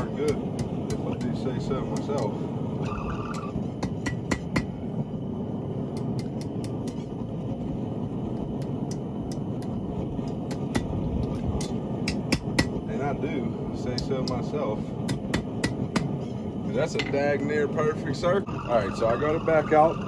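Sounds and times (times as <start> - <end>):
steady rushing noise: 0.0 - 20.0.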